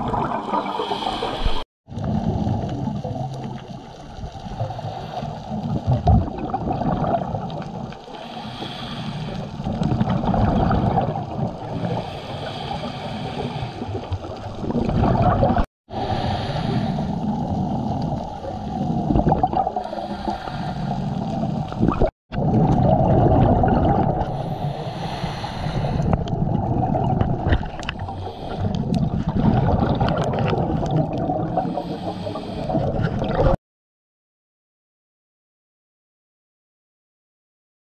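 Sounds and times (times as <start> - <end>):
low underwater water rush: 0.0 - 33.6
regulator bubbling: 17.2 - 19.9, 21.4 - 24.6, 26.0 - 31.8.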